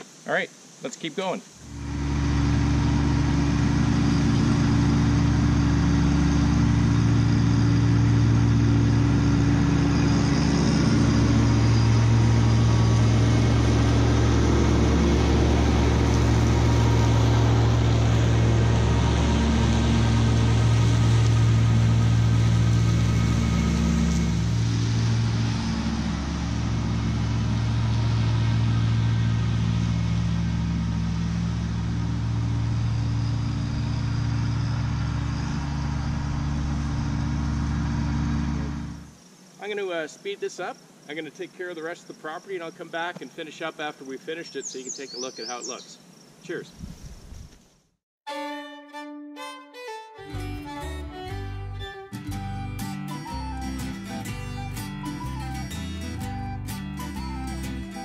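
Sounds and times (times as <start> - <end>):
mower cutting tall grass: 1.6 - 39.3, 50.3 - 58.0
tractor diesel engine running: 1.6 - 39.6, 50.2 - 58.0.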